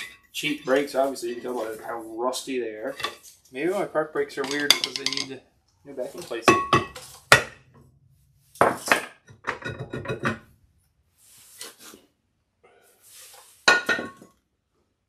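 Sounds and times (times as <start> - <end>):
metal rotor clanging on concrete: 4.4 - 5.4.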